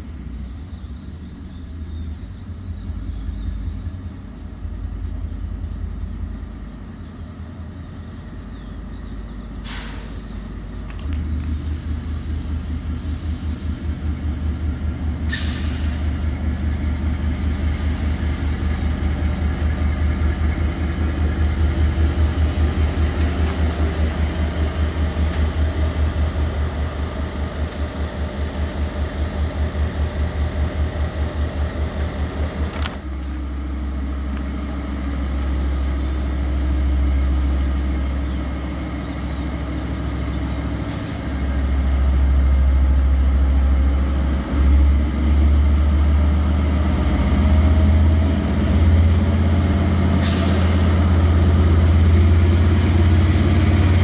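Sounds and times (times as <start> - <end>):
diesel locomotive rumbling: 0.0 - 54.0
short hisses: 9.6 - 10.4, 15.3 - 16.1.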